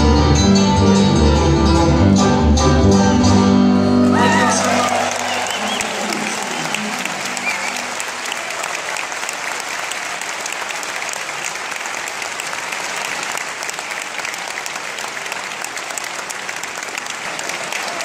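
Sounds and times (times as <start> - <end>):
audience applauding: 4.1 - 18.0.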